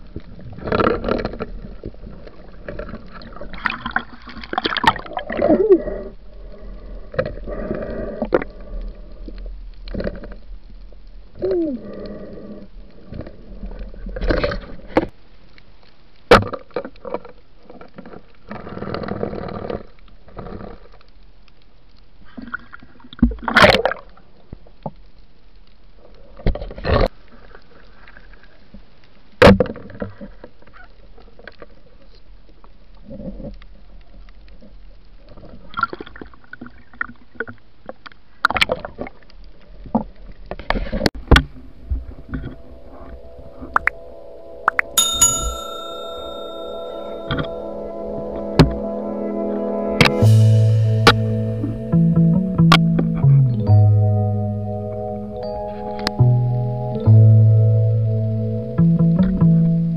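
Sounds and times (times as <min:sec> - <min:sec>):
water sloshing and gurgling: 0:00.0 - 0:15.2.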